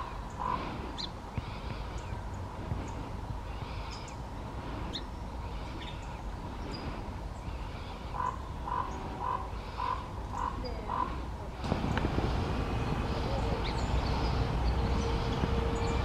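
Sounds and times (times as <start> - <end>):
faint bird calls: 0.0 - 12.1
low rumble: 11.4 - 16.0.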